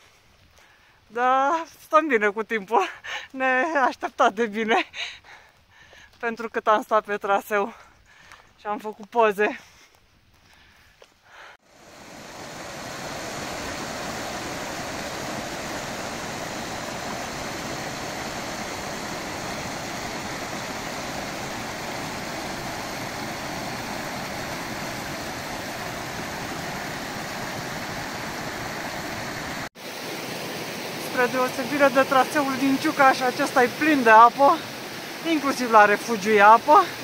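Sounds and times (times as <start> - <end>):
mountain stream rushing: 11.6 - 37.0.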